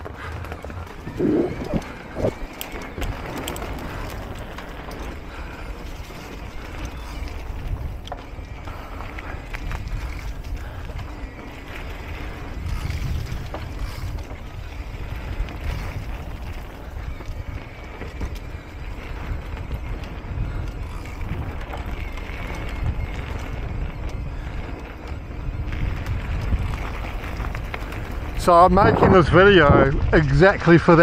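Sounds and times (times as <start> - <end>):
bike rattling over bumps: 0.0 - 31.0
wind rumbling on microphone: 0.0 - 31.0.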